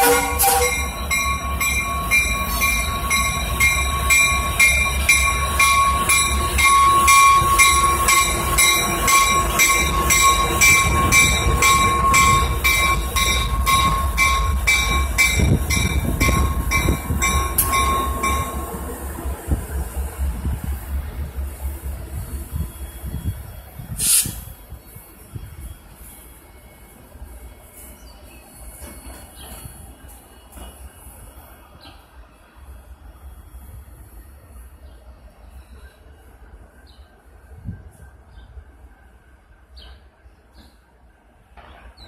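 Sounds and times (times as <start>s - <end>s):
locomotive bell ringing: 0.0s - 19.4s
locomotive rumbling: 0.0s - 26.2s.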